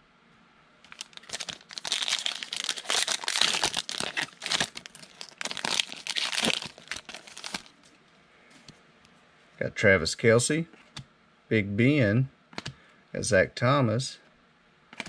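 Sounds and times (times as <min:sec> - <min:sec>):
foil wrapper crinkling and tearing: 0:00.9 - 0:07.9.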